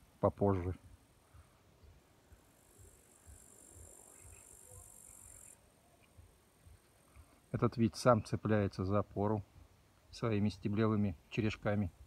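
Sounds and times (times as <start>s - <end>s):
thin high-pitched hiss: 0.6s - 8.4s.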